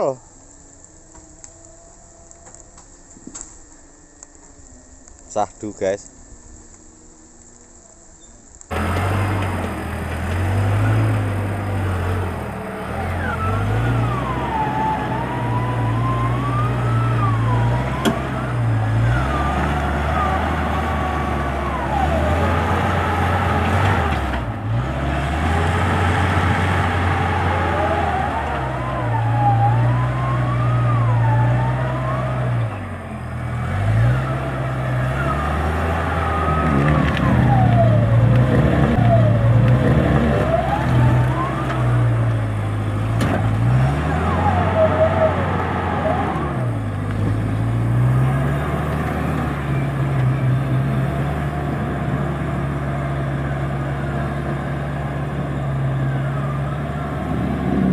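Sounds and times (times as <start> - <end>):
high wavering tone: 0.0 - 8.6
car engine labouring: 0.0 - 57.9.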